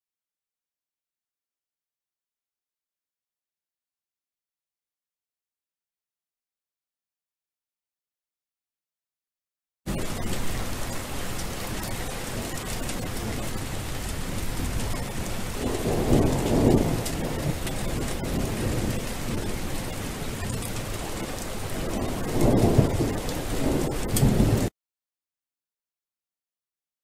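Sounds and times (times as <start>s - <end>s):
steady rain: 9.9s - 24.7s
thunder rolling: 9.9s - 24.7s.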